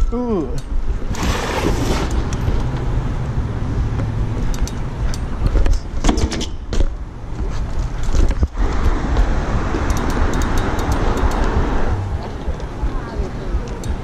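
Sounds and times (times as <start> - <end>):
passing cars: 0.8 - 6.0, 6.6 - 14.0
bike tyres rumbling on pavement: 0.9 - 13.6
wind on microphone: 7.0 - 14.0.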